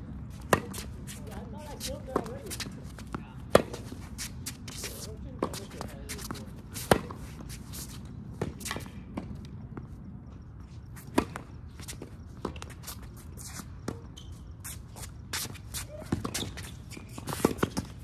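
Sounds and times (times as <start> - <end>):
footsteps on court: 0.3 - 18.0
racket striking tennis ball: 0.4 - 1.2, 3.5 - 7.3.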